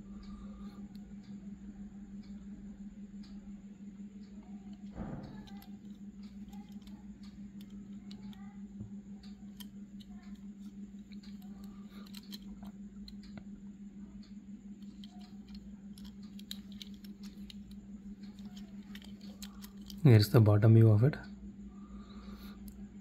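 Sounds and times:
steady low hum: 0:00.0 - 0:23.0
fingers tapping toy car: 0:04.8 - 0:08.5, 0:14.8 - 0:20.0.

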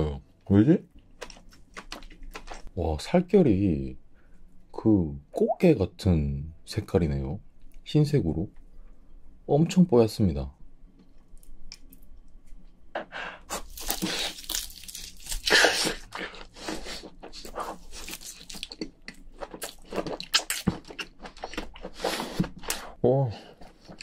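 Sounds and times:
person chewing wet smacking: 0:01.1 - 0:02.7, 0:17.2 - 0:22.8.

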